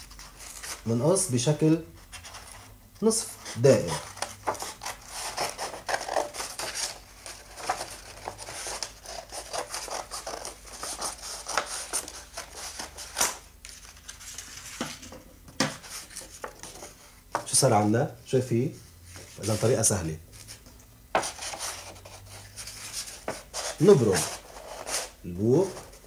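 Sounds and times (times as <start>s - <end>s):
paper rustling: 0.0s - 1.2s, 3.3s - 17.5s, 19.0s - 26.0s
scissors snipping paper: 3.9s - 13.4s.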